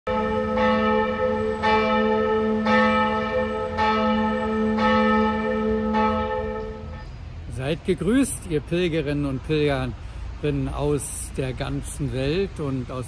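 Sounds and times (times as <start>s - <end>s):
church bell tolling: 0.1s - 7.3s.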